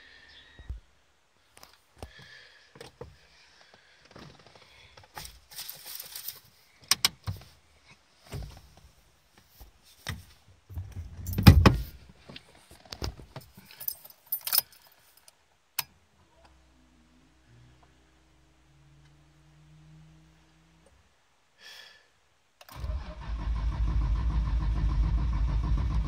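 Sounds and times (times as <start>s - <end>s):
heavy thump: 11.2s - 12.0s
keys jangling: 13.6s - 14.9s.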